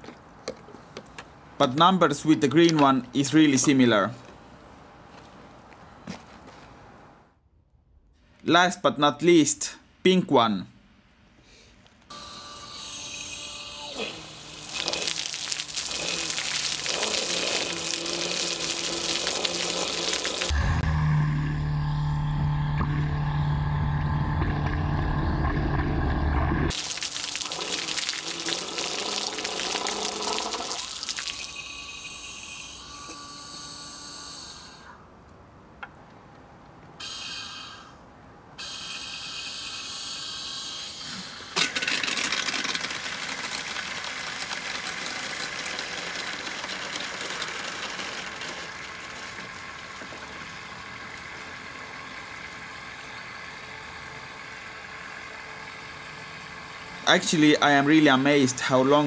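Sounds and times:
water pump high steady tones: 0:12.1 - 0:35.1, 0:37.0 - 0:59.0
water pouring into plastic container: 0:14.4 - 0:20.5, 0:26.7 - 0:31.7, 0:41.6 - 0:51.2.

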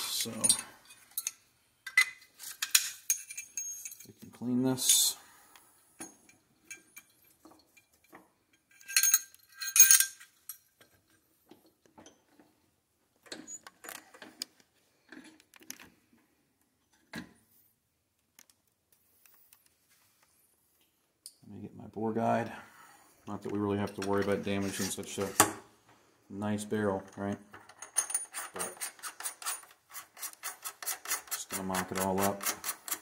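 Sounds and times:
metal gun parts clinking: 0:00.2 - 0:04.2, 0:06.0 - 0:11.1, 0:27.2 - 0:29.7.

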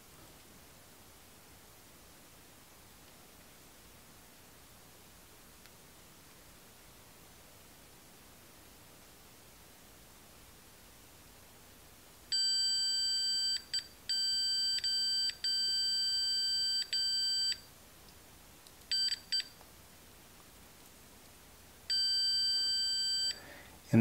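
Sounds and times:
continuity tester beep: 0:12.3 - 0:17.6, 0:18.9 - 0:19.5, 0:21.9 - 0:23.4.

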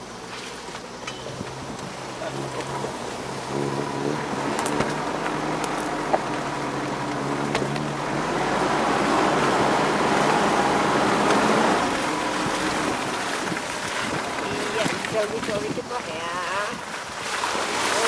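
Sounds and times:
suv engine at low revs: 0:00.0 - 0:18.0.

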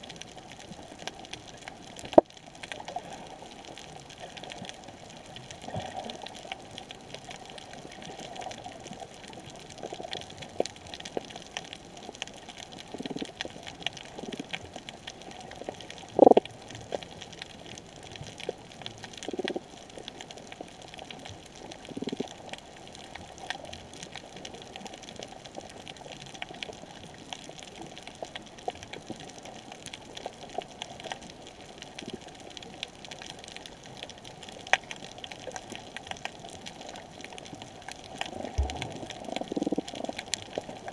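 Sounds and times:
underwater hiss with crackling clicks: 0:00.0 - 0:40.9
low underwater thumps: 0:38.5 - 0:39.6.

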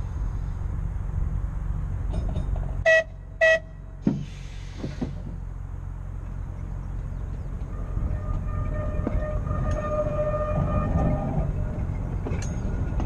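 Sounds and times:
clunk: 0:02.0 - 0:02.9, 0:04.0 - 0:05.4, 0:07.0 - 0:13.0
tram horn toots: 0:02.8 - 0:03.9, 0:07.6 - 0:12.0
air hiss: 0:04.1 - 0:05.4
traction motor whine: 0:06.2 - 0:13.0.

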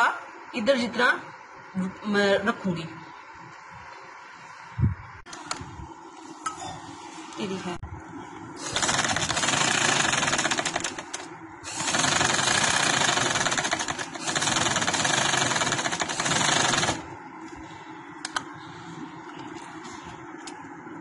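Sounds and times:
sewing machine stitching: 0:08.6 - 0:17.0.

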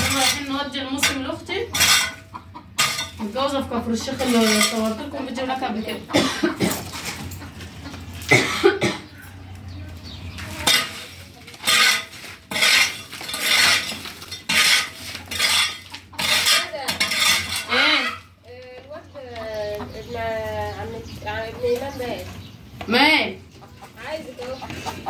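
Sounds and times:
metal shovel scraping earth floor: 0:00.0 - 0:03.5, 0:04.1 - 0:05.2, 0:10.4 - 0:18.2.

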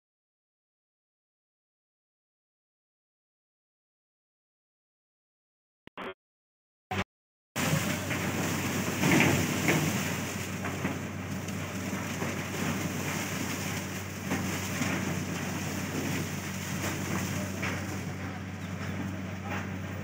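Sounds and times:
rushing clatter of machinery: 0:07.6 - 0:20.0.

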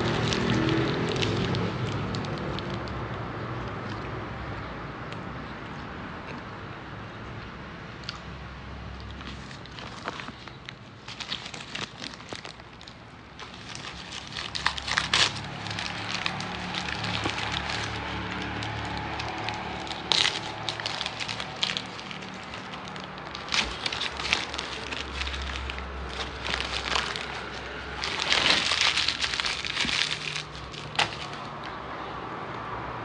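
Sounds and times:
paper wrapper crinkling: 0:00.0 - 0:03.0, 0:09.0 - 0:31.8.

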